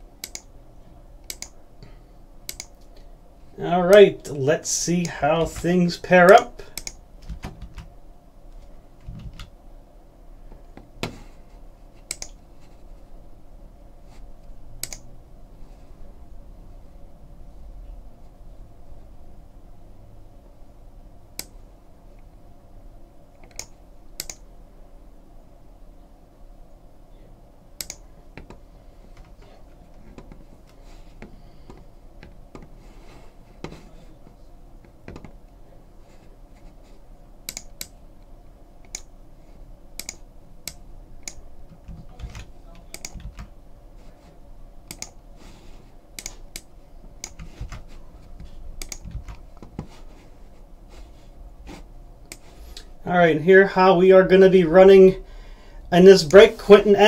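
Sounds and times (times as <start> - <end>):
faint steady low hum: 0.0 - 57.0
computer keyboard typing: 1.3 - 1.6, 2.5 - 2.9, 5.1 - 7.9, 12.0 - 12.4, 14.8 - 15.1, 37.4 - 38.0, 40.0 - 43.5, 44.9 - 45.2, 48.8 - 49.8.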